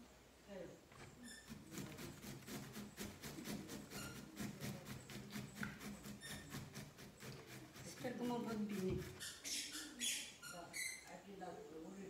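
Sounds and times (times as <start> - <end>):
grating on metal grater: 1.4 - 9.6.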